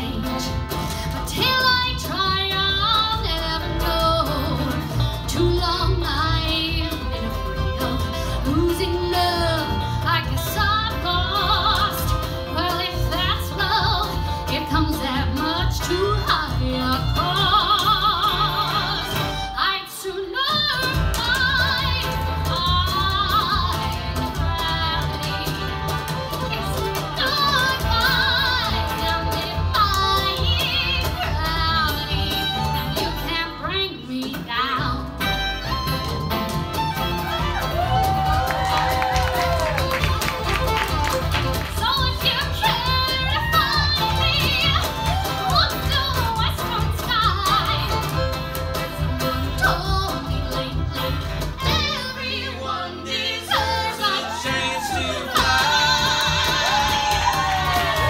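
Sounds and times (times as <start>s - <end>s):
upright bass: 0.0s - 19.7s, 20.5s - 58.0s
woman singing: 0.0s - 35.3s, 40.8s - 58.0s
cajon: 34.2s - 52.2s, 53.6s - 58.0s.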